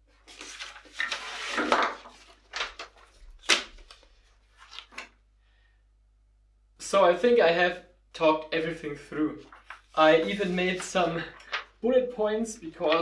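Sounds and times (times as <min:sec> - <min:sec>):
paper rustling: 0:00.0 - 0:05.2, 0:09.4 - 0:11.8, 0:12.8 - 0:13.0.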